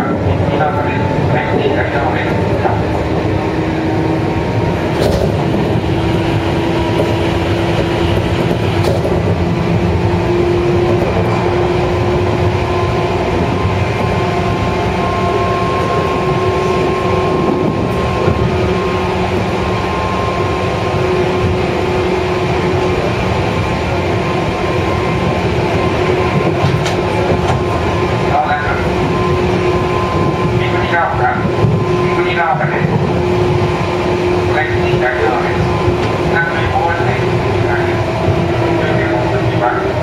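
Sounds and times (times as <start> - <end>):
train wheel and rail rumble: 0.0 - 40.0.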